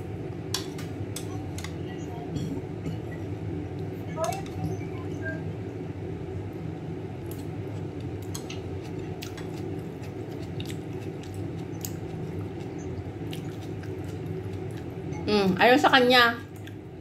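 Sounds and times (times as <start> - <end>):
steady low hum: 0.0 - 17.0
person chewing noodles: 7.3 - 15.0.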